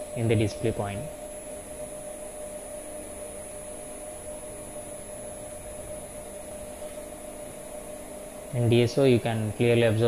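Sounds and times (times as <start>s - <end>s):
thin high-pitched motor whine: 0.0s - 10.0s.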